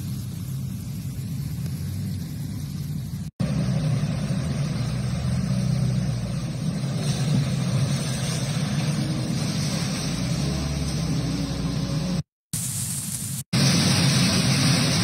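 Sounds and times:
steady low rumble: 0.0s - 10.5s
hiss: 0.0s - 15.0s.

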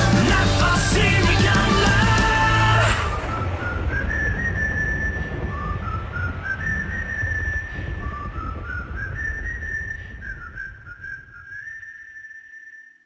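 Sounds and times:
deep rumbling bass: 0.0s - 6.6s
whistled melody: 0.0s - 13.0s.

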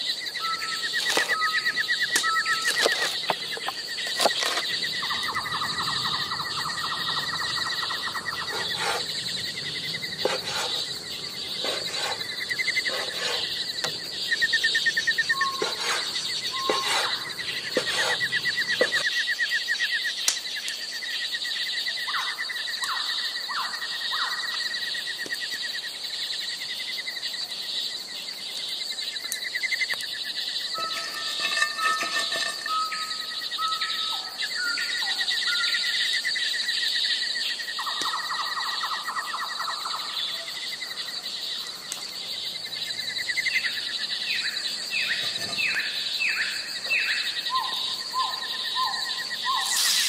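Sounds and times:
insects trilling: 0.0s - 50.0s
bird chirps: 0.4s - 19.1s, 29.7s - 36.0s, 43.4s - 50.0s.

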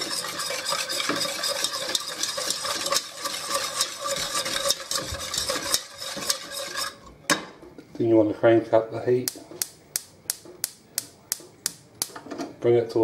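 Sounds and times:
whisk clicking against metal pan: 0.0s - 7.0s.

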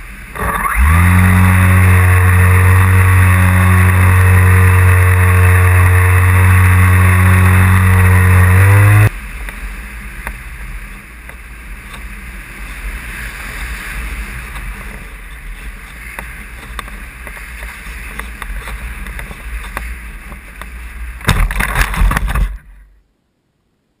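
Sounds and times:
model aeroplane motor and propeller: 0.0s - 22.7s
scraping and rustling in grass: 11.8s - 21.2s.

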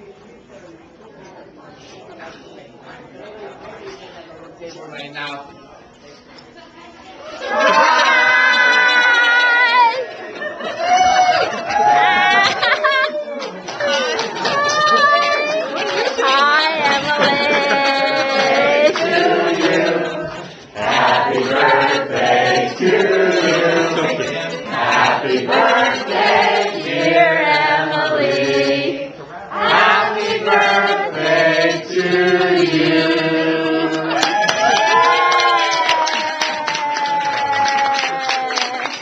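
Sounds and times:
group of people singing: 15.5s - 34.4s.

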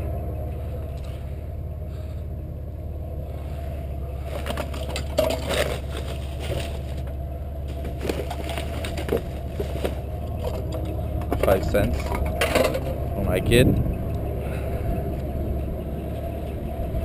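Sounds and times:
vehicle idling hum: 0.0s - 17.0s
plastic bags rustling and crinkling: 4.2s - 10.6s.

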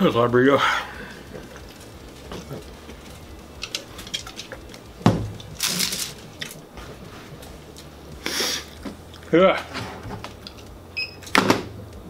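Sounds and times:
short hiss: 8.2s - 8.8s.

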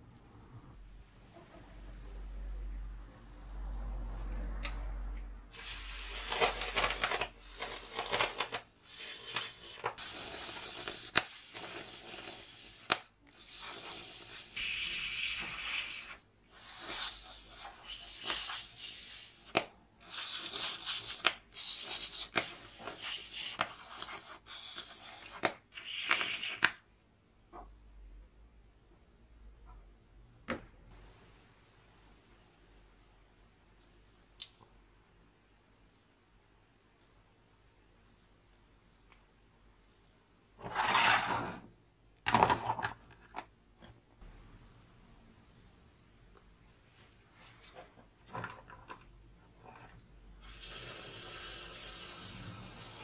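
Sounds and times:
aerosol spray hissing: 5.6s - 6.8s, 8.9s - 26.6s.

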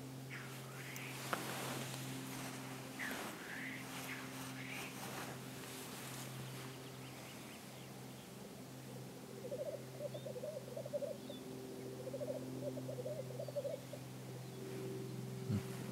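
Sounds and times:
steady low hum: 0.0s - 15.9s
black grouse bubbling coos: 8.8s - 11.2s.

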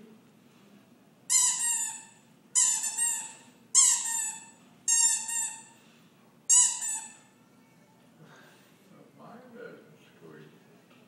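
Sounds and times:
rubber squeeze-toy squeaking: 1.3s - 5.7s, 6.5s - 7.3s.

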